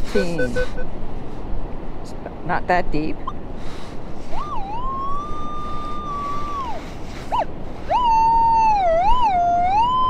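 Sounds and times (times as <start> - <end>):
metal detector beeping: 0.2 - 0.9.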